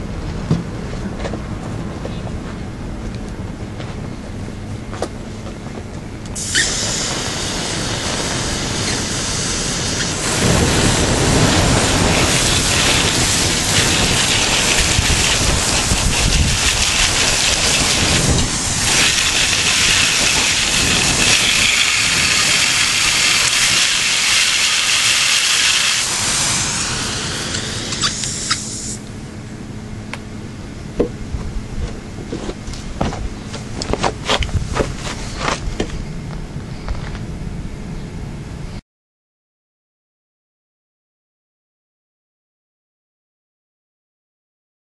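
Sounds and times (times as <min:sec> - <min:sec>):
water jet hissing: 0:06.4 - 0:29.1.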